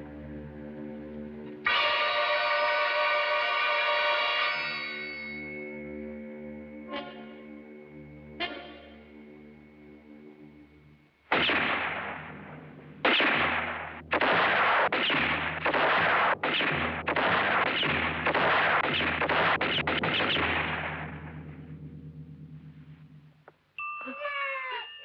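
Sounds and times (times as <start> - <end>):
gunshots echoing: 11.3 - 21.6.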